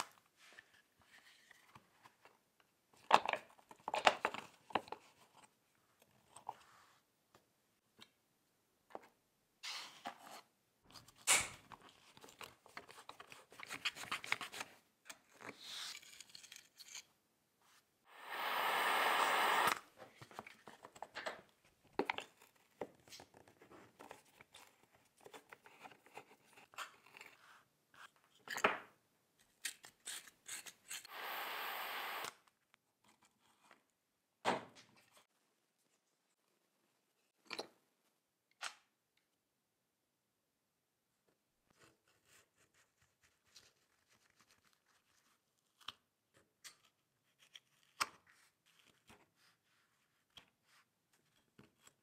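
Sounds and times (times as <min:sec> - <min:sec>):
short bursts of hiss: 0:18.1 - 0:19.8, 0:31.1 - 0:32.3.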